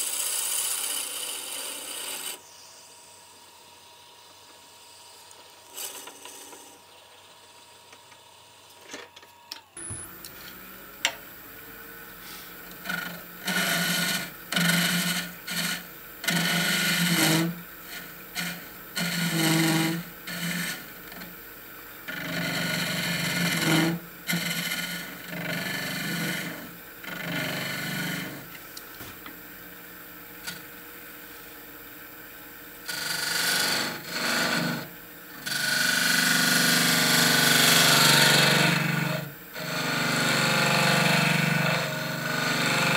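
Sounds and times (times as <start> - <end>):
turning tool scraping wood: 0.0 - 2.4, 5.2 - 6.8, 12.2 - 21.3, 22.1 - 28.6, 32.9 - 42.9
wood lathe humming: 0.0 - 28.6, 32.8 - 42.9.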